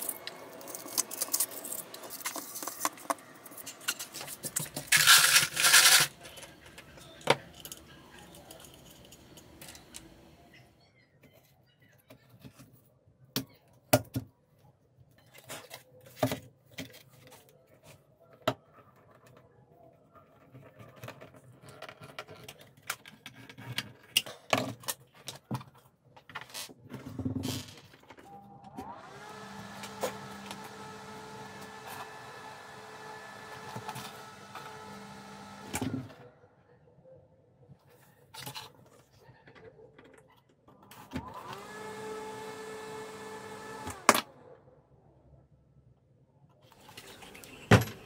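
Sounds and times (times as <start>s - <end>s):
computer fan humming: 28.2s - 36.2s.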